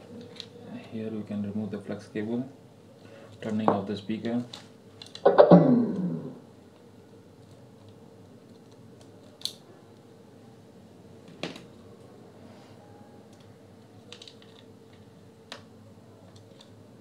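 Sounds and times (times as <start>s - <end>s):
faint steady hum: 0.0s - 17.0s
plastic parts clicking: 13.3s - 15.7s.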